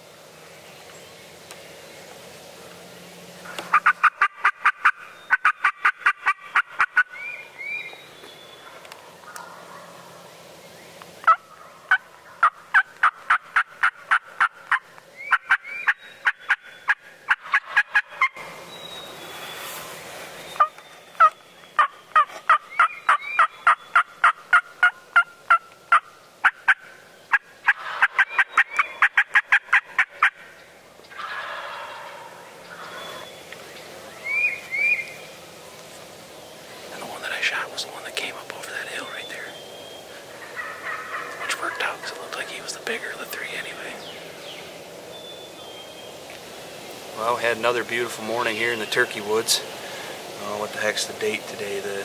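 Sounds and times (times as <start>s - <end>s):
wild turkey yelping: 3.4s - 8.0s, 8.6s - 10.3s, 11.2s - 18.4s, 20.6s - 33.2s, 34.2s - 35.2s, 37.1s - 44.0s.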